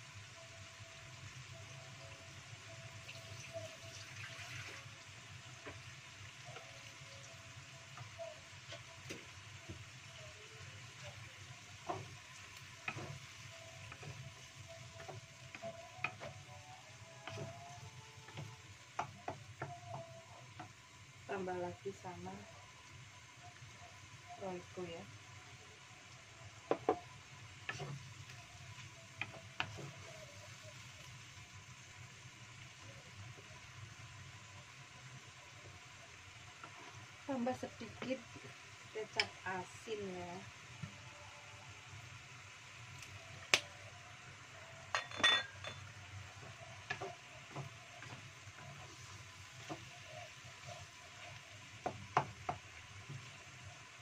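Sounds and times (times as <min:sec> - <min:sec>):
faint sizzle: 0:00.0 - 0:54.0
wooden spatula stirring in wok: 0:07.8 - 0:21.3, 0:26.0 - 0:39.8, 0:45.5 - 0:54.0
wooden spatula knocking a wok: 0:18.3 - 0:20.8, 0:26.6 - 0:28.0, 0:29.2 - 0:30.2, 0:46.8 - 0:48.9, 0:49.5 - 0:53.4
glass bottle clinking on metal: 0:44.9 - 0:45.9.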